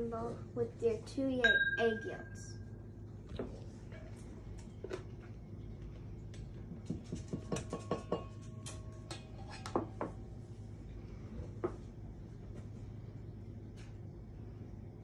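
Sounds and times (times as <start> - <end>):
metallic bowl ring: 1.4 - 2.6, 7.6 - 9.7
spatulas knocking on steel bowls: 6.8 - 10.2.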